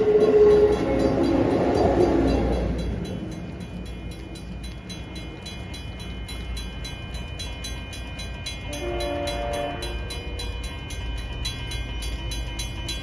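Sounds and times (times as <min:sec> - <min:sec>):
train horn chord: 0:08.7 - 0:10.2.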